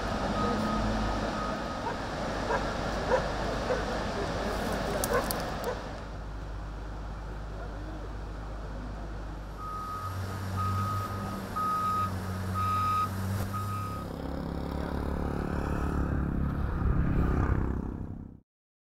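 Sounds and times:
reversing alarm beeps: 0:00.3 - 0:01.9, 0:09.6 - 0:14.1.

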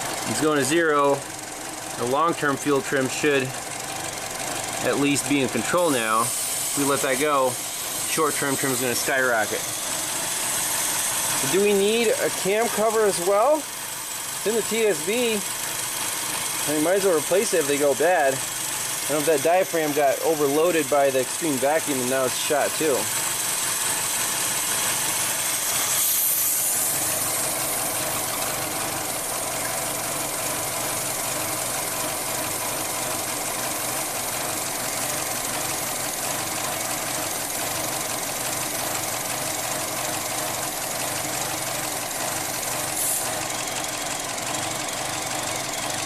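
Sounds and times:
car engine idling: 0:00.0 - 0:46.0
hiss: 0:05.9 - 0:12.9, 0:18.4 - 0:43.7.

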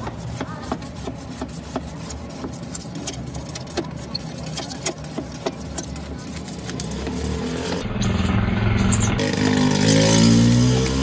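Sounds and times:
low engine hum: 0:05.2 - 0:11.0.

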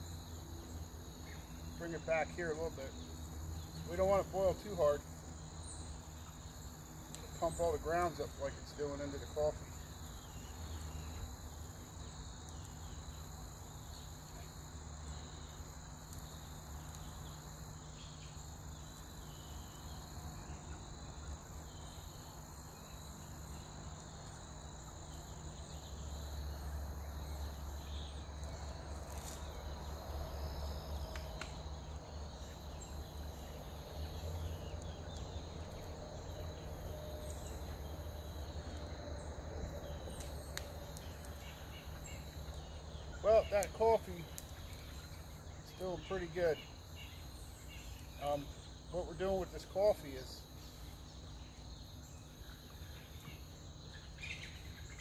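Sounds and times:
insects droning: 0:00.0 - 0:55.0
faint clicks: 0:31.1 - 0:31.6, 0:40.1 - 0:41.5.

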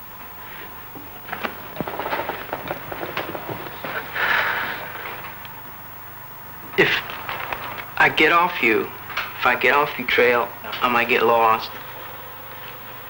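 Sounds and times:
breathy hiss: 0:00.4 - 0:05.7
film soundtrack crackle: 0:00.6 - 0:13.0.

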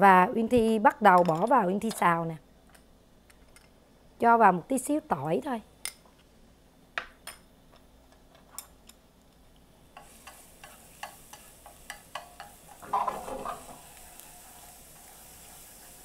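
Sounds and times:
garlic sizzling in oil: 0:09.8 - 0:16.0
chopsticks stirring and tapping: 0:10.0 - 0:16.0
clatter against a pan: 0:11.0 - 0:13.8.

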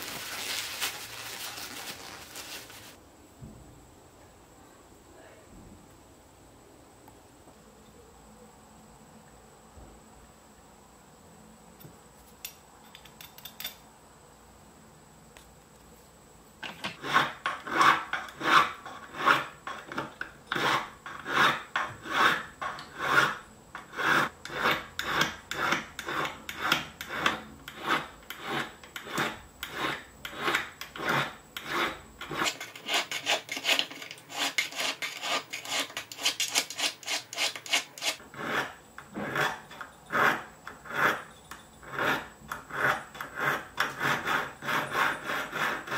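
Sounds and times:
hand file rasping on metal: 0:16.9 - 0:45.9.

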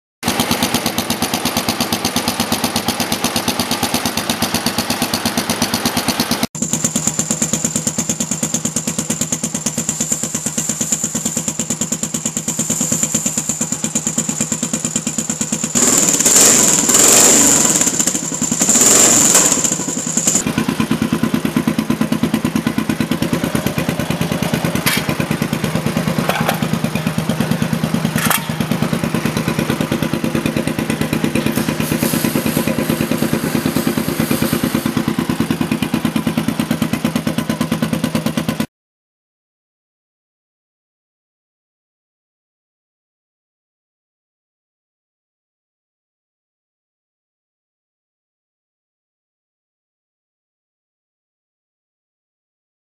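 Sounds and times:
motorcycle engine idling: 0:00.2 - 0:38.7
motorcycle throttle blips: 0:00.3 - 0:35.6.

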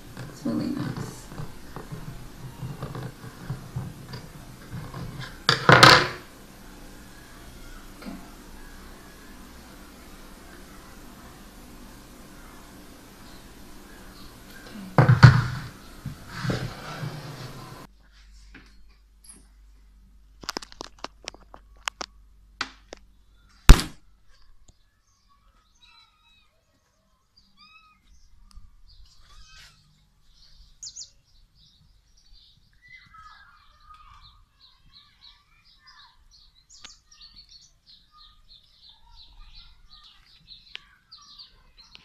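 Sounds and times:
small birds chirping: 0:00.0 - 0:05.6, 0:06.3 - 0:20.0, 0:21.1 - 0:23.7, 0:24.3 - 0:42.0
camera knocking and rubbing: 0:00.1 - 0:06.2, 0:15.0 - 0:17.9
loud thump: 0:15.0 - 0:15.8.

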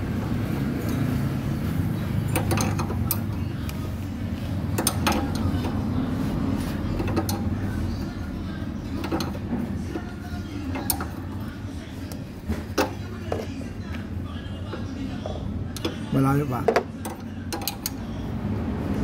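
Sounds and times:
wrench metallic clicks and knocks: 0:02.3 - 0:03.8, 0:04.7 - 0:05.8, 0:07.0 - 0:07.5, 0:09.0 - 0:11.3, 0:16.6 - 0:18.1.

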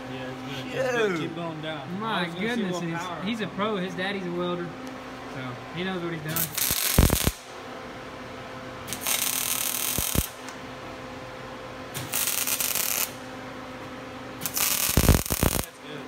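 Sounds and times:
steady low hum: 0:00.0 - 0:16.0
arc welder crackling: 0:06.3 - 0:07.6, 0:08.8 - 0:10.7, 0:11.9 - 0:13.3, 0:14.4 - 0:15.8.

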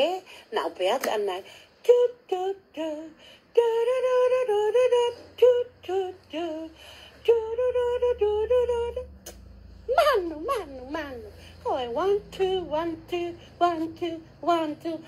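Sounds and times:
woman singing: 0:00.0 - 0:15.0.

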